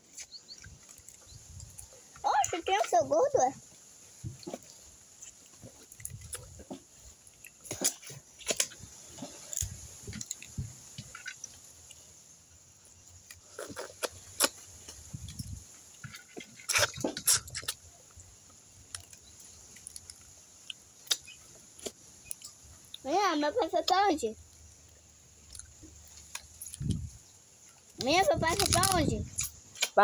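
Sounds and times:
chewing: 0:00.1 - 0:03.0, 0:04.2 - 0:12.1, 0:12.8 - 0:23.0, 0:24.5 - 0:30.0
crab shells cracking: 0:18.8 - 0:23.0.

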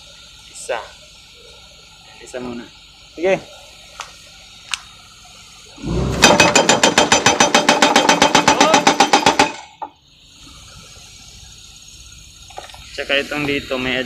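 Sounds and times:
hydraulic breaker hammer blows: 0:05.8 - 0:10.0.

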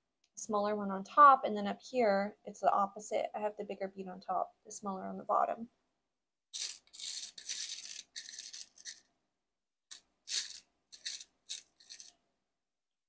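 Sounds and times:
stone beads rattling in plastic box: 0:06.6 - 0:09.1, 0:09.9 - 0:12.2.

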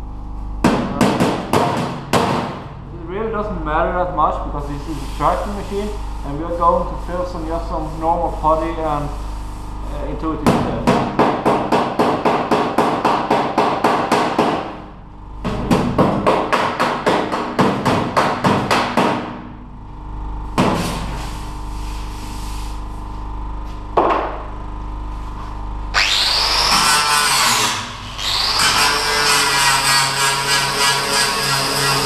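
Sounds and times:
angle grinder grinding metal: 0:25.9 - 0:32.0.

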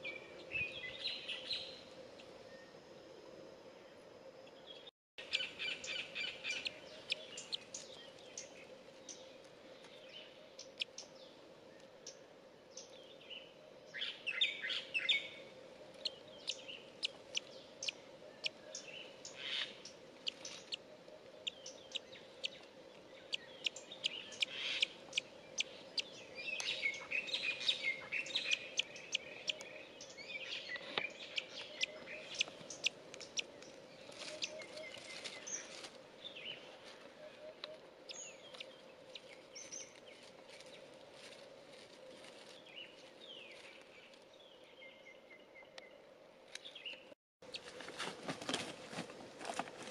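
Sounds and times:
faint steady hum: 0:00.0 - 0:49.9
eagle chicks chirping: 0:05.2 - 0:08.6, 0:14.1 - 0:35.8.

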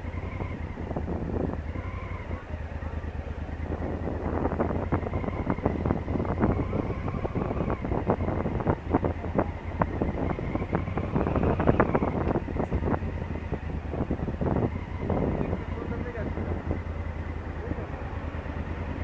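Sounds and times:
wind crackling on microphone: 0:00.0 - 0:02.7, 0:03.4 - 0:17.0
motorcycle engine running low revs: 0:00.0 - 0:19.0.

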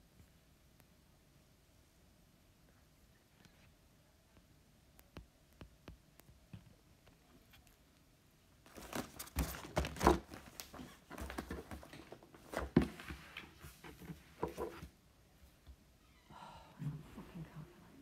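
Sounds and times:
rustling handling noise: 0:08.6 - 0:15.6.

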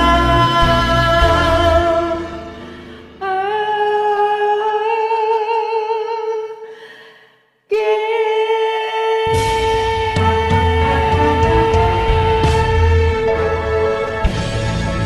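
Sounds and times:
backing music: 0:00.0 - 0:03.9, 0:09.2 - 0:15.0
person singing long vibrato note: 0:07.7 - 0:14.3.

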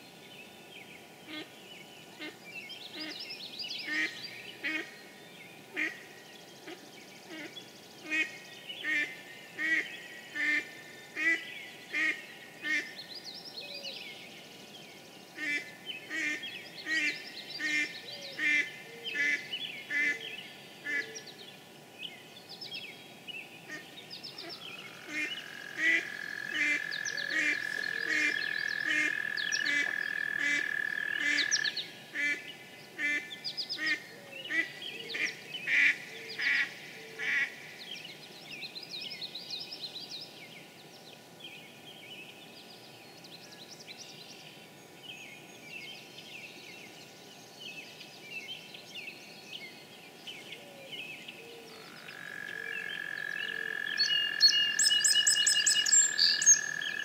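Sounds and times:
songbirds singing faintly: 0:00.0 - 0:57.0
duck quacking: 0:25.1 - 0:31.6
toad trilling: 0:52.1 - 0:57.0.

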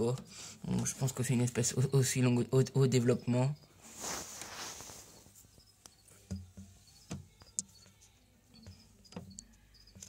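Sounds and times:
crickets chirping: 0:01.2 - 0:08.0.

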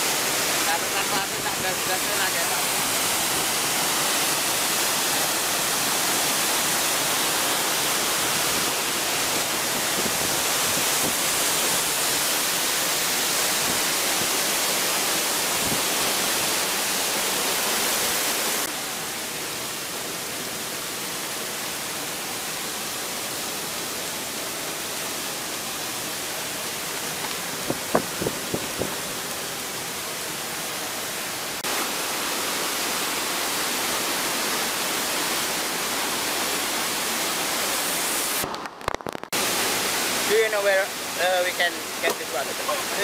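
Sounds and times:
waterfall rushing: 0:00.0 - 0:43.0.

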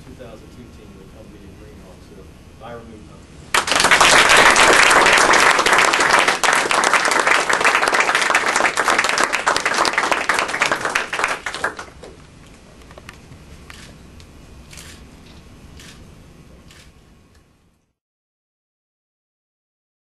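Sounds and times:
audience applauding: 0:03.5 - 0:12.2.

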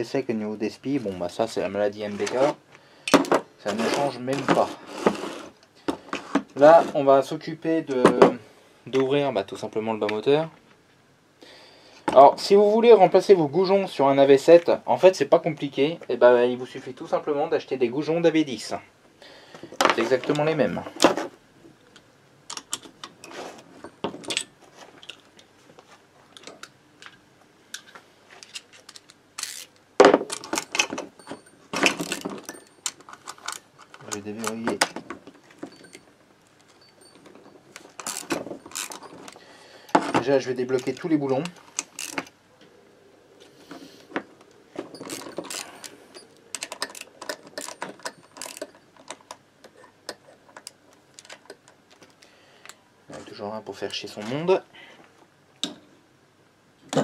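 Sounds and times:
metal clinks and knocks: 0:27.8 - 0:42.3, 0:44.2 - 0:51.8
socket ratchet clicking: 0:28.9 - 0:30.8, 0:37.8 - 0:39.4, 0:45.0 - 0:49.4.

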